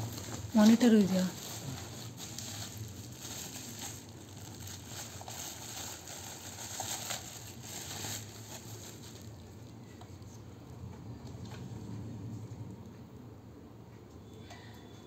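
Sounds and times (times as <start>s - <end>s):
bubble wrap crinkling: 0.0s - 9.8s.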